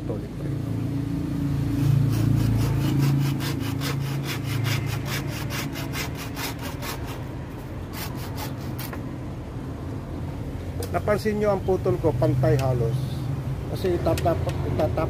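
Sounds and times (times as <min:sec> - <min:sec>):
hand saw cutting wood: 0:01.7 - 0:09.0.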